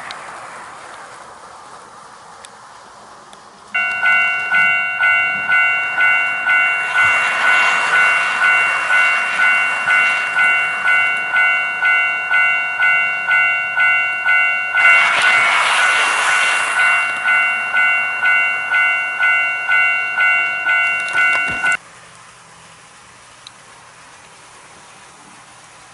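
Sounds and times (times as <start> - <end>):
model train wheels rumbling: 0.0 - 21.8
level crossing electronic bell: 3.8 - 21.8.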